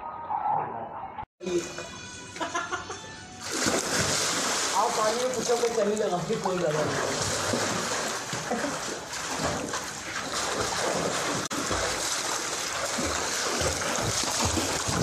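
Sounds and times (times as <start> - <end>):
water splashing from swimming: 3.4 - 15.0.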